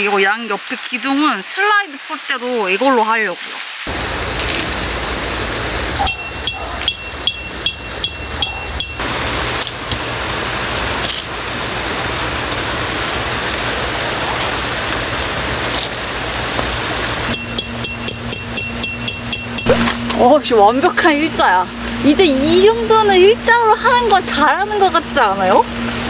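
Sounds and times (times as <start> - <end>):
hammer striking metal tent peg: 6.4 - 9.0, 17.3 - 20.0.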